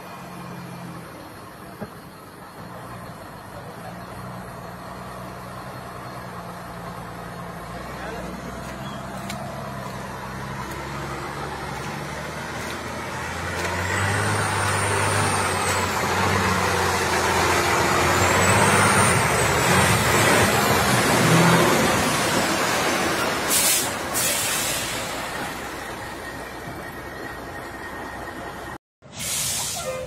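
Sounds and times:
truck diesel engine running: 0:00.0 - 0:28.8
air brake hisses: 0:23.5 - 0:25.2, 0:29.1 - 0:30.0.

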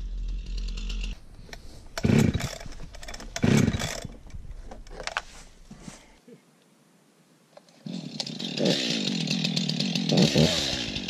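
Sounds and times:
chainsaw idling: 0:00.0 - 0:01.2, 0:02.0 - 0:04.2, 0:07.8 - 0:11.0
chainsaw starter cord pulls: 0:00.0 - 0:05.2, 0:07.8 - 0:11.0.

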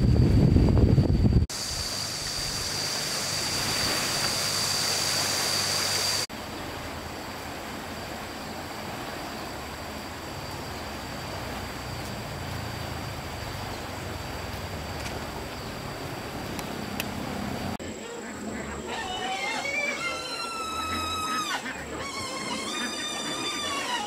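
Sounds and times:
river flowing fast: 0:01.5 - 0:17.8.

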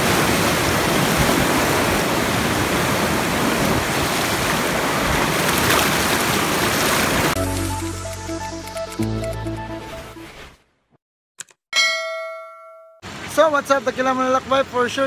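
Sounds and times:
water rushing over rocks: 0:00.0 - 0:07.4.

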